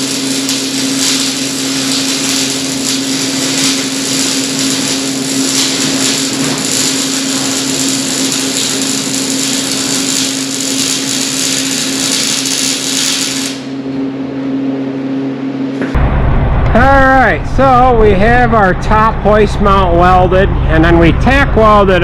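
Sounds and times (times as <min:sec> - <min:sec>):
welding arc crackling: 0:00.0 - 0:13.8
constant hum: 0:00.0 - 0:22.0.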